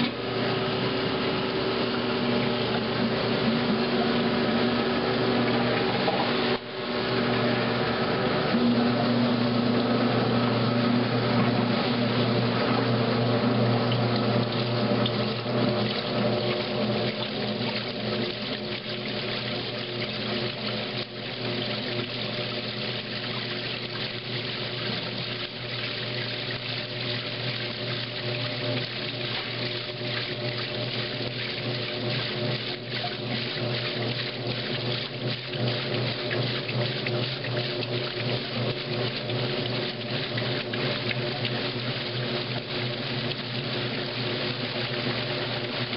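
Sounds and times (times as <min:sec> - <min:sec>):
washing machine motor hum: 0:00.0 - 0:45.9
water rushing through drain pump: 0:00.0 - 0:45.9.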